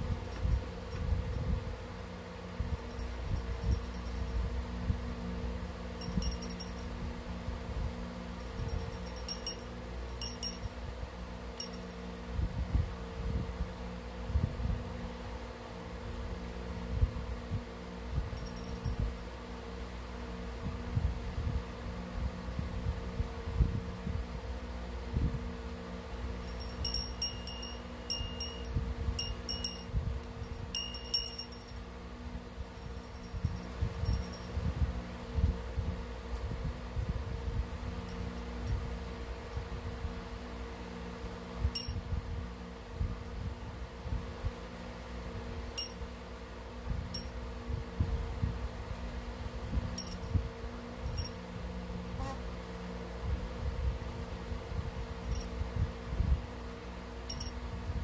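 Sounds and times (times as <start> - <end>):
fan hum: 0.0 - 58.0
small bell jingling: 0.2 - 1.4, 2.8 - 4.4, 6.0 - 6.9, 8.4 - 10.8, 11.6 - 12.0, 18.4 - 19.0, 26.4 - 31.9, 32.7 - 34.5, 41.8 - 42.0, 50.0 - 50.3, 51.1 - 51.4, 55.3 - 55.5, 57.3 - 57.6.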